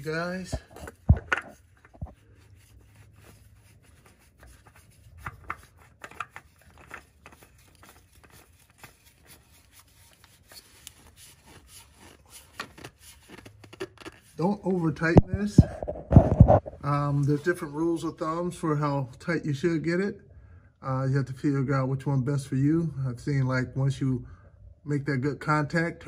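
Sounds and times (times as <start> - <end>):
oil filter scraping on threads: 0.0 - 18.0.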